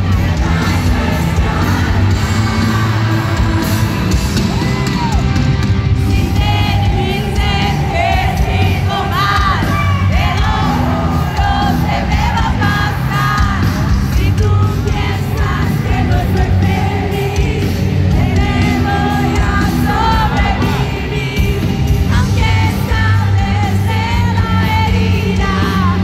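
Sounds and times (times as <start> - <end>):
crowd shouting along: 0.0 - 14.0
live pop band with vocals: 0.0 - 26.0.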